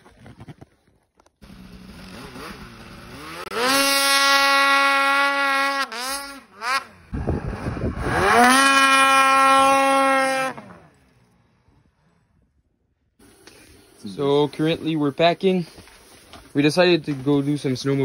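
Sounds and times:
snowmobile engine revving: 1.4 - 12.2, 13.2 - 15.9.

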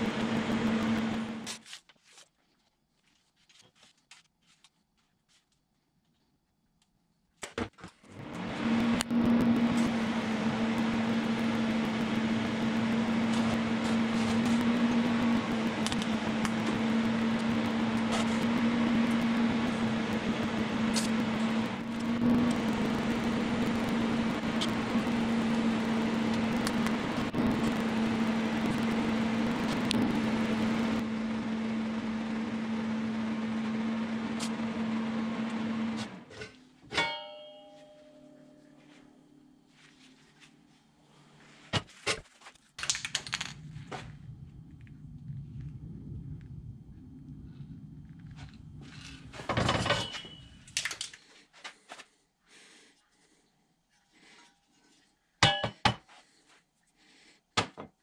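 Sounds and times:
machine humming and hissing: 0.0 - 1.6, 8.1 - 36.3, 43.4 - 50.8
short ring: 36.9 - 38.8, 49.8 - 50.6.

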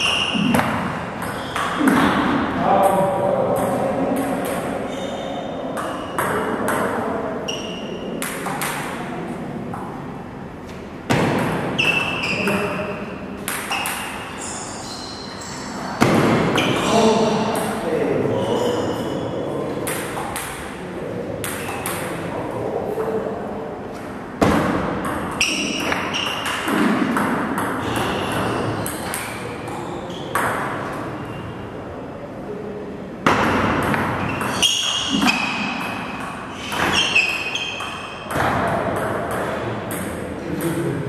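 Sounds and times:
shoes squeaking on floor: 0.0 - 0.6, 1.3 - 2.0, 4.9 - 6.2, 7.4 - 8.1, 11.7 - 17.4, 18.3 - 19.5, 25.4 - 26.7, 27.8 - 29.1, 34.2 - 38.3.

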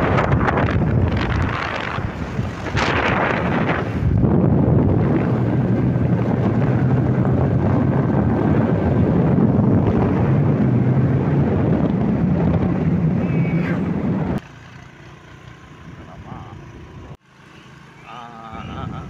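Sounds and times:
wind buffeting microphone: 0.0 - 14.4
vehicle engine hum: 0.0 - 19.0.

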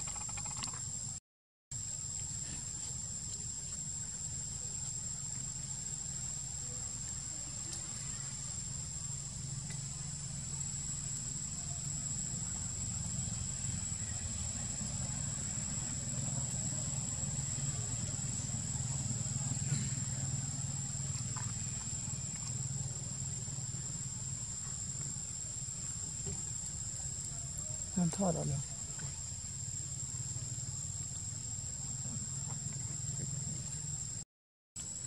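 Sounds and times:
high-pitched insect drone: 0.0 - 1.2.

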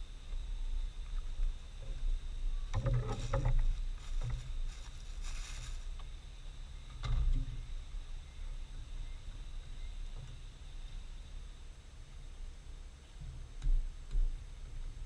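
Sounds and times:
steady low rumble: 0.0 - 15.0
hissing rustle: 2.8 - 6.3.

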